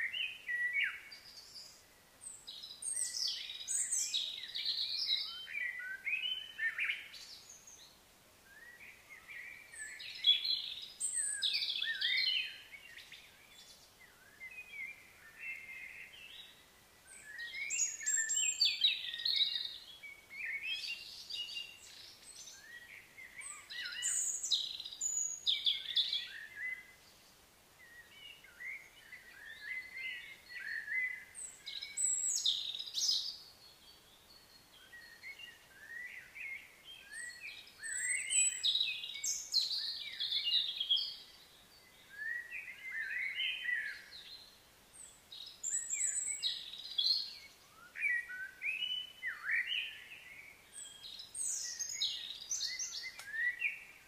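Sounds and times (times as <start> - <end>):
birds chirping and calling: 8.6 - 26.8, 45.0 - 54.0.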